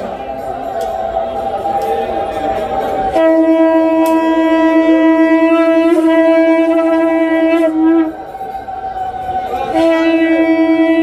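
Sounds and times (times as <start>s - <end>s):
conch shell blown: 0.0s - 11.0s.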